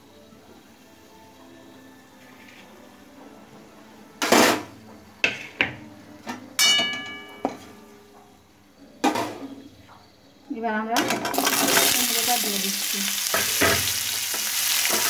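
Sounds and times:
metal utensils clanking on wok: 6.6s - 7.6s, 11.0s - 12.4s, 13.2s - 15.0s.

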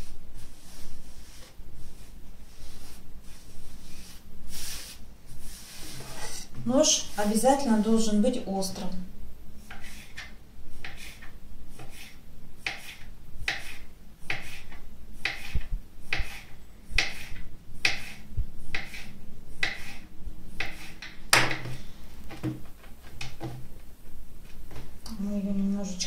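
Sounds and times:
knife chopping dough on table: 9.7s - 20.0s, 20.6s - 21.7s.

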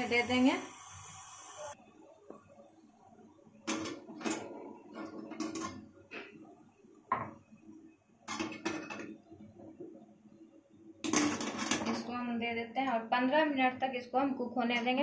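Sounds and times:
metal plates clinking against pot: 3.7s - 5.8s, 8.3s - 9.1s, 11.0s - 12.0s.

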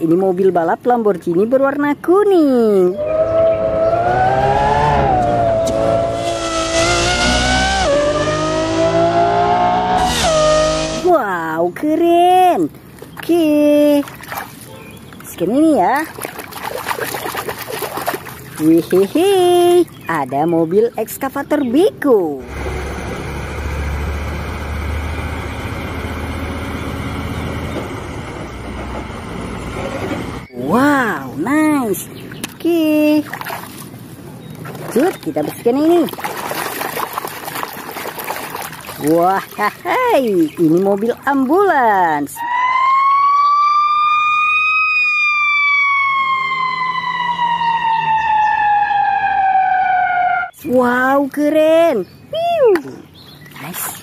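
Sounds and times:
road noise: 0.0s - 43.2s, 44.0s - 54.0s
ambulance siren wailing: 2.9s - 11.1s, 42.2s - 50.6s
diesel truck engine rumble: 18.4s - 33.2s.

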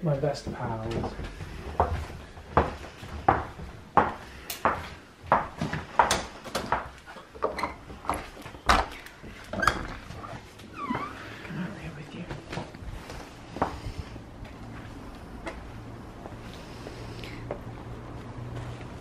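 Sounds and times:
footsteps on wooden floor: 0.2s - 11.5s, 12.2s - 19.0s
glazed door opening: 8.6s - 11.4s.

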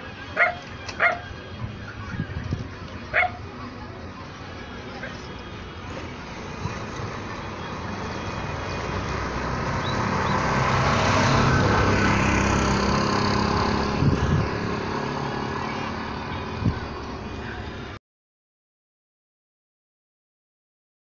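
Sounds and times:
motor vehicle passing: 4.9s - 18.0s.

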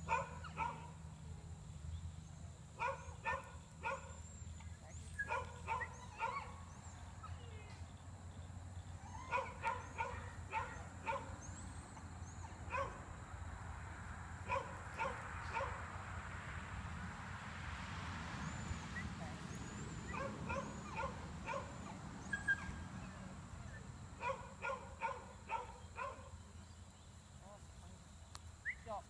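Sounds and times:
dog barking: 0.0s - 0.9s, 2.8s - 4.2s, 5.2s - 6.6s, 9.3s - 11.4s, 12.7s - 13.0s, 14.5s - 15.8s, 20.1s - 21.8s, 24.2s - 26.3s.

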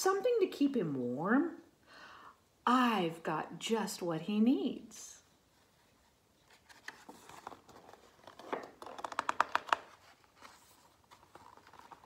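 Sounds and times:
paper page rustling: 5.8s - 12.0s
paper crackles: 6.4s - 12.0s.

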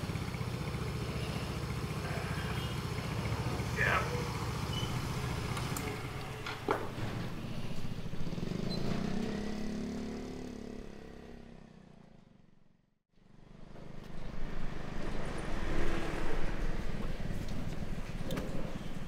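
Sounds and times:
motor scooter engine running: 0.0s - 11.9s
noisy outdoor background: 0.0s - 19.0s.

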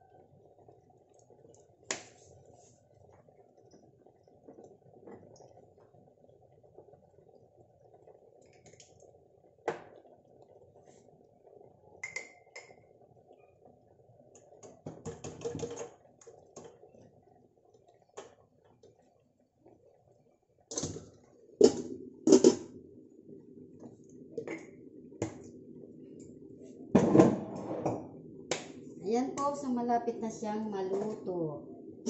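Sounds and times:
faint steady hum: 0.0s - 32.0s
glass jar clicks: 12.0s - 12.7s.

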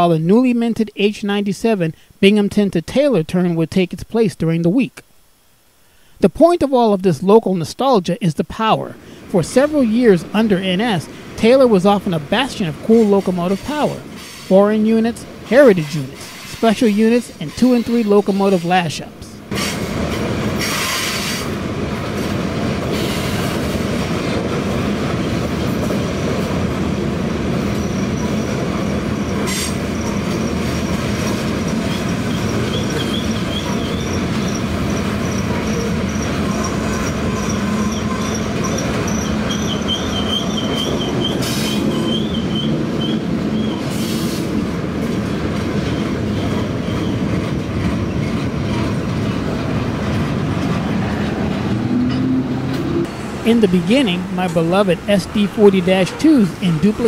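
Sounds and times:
train wheels rumbling on rail: 9.6s - 14.5s, 15.2s - 16.8s, 19.4s - 57.0s
high thin wheel squeal: 31.6s - 44.4s.

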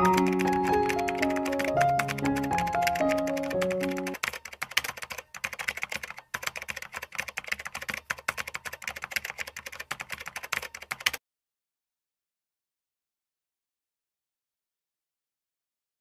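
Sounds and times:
slow background music: 0.0s - 4.2s
rapid keyboard typing clicks: 0.0s - 11.2s.

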